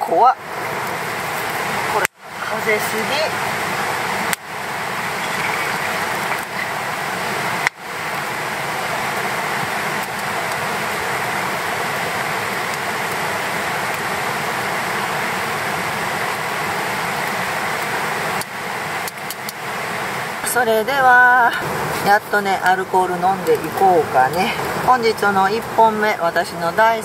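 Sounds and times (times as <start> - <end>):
steady rushing noise: 0.0 - 27.0.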